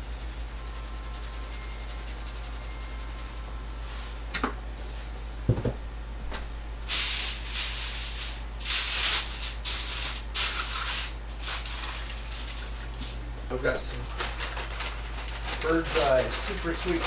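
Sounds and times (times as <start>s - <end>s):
aluminium foil crinkling: 7.8s - 13.2s, 13.8s - 17.0s.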